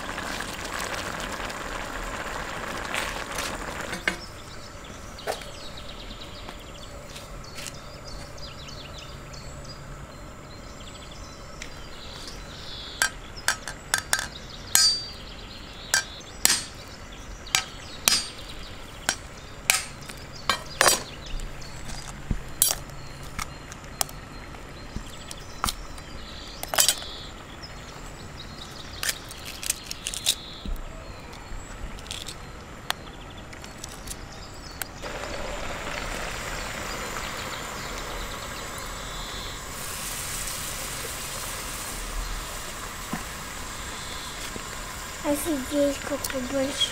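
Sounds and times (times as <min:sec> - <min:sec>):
egg sizzling in pan: 0:00.0 - 0:04.4, 0:35.0 - 0:46.9.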